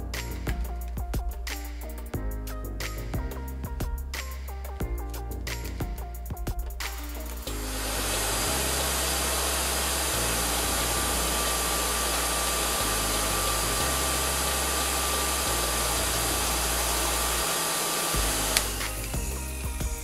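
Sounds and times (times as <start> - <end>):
hair dryer running: 7.5 - 20.0.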